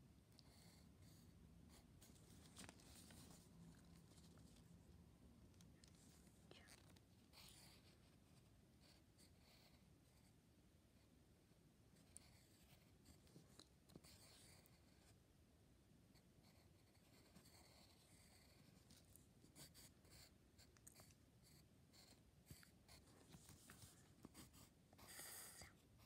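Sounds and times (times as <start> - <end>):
pen scratching on paper: 14.0 - 15.1, 16.4 - 25.6.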